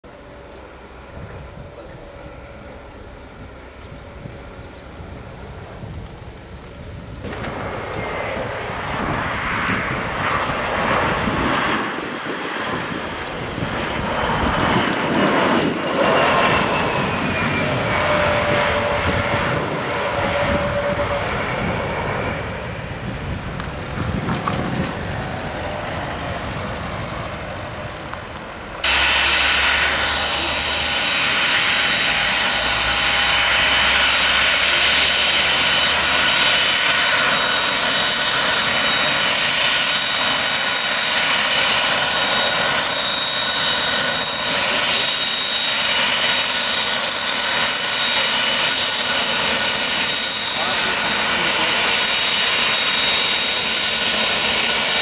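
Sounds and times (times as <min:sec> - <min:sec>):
jet airliner engines: 0:00.0 - 0:55.0
business jet turbofan whine: 0:00.1 - 0:55.0.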